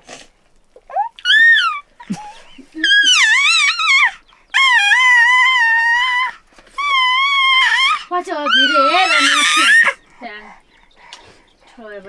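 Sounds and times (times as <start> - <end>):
infant wailing: 0.8 - 10.0.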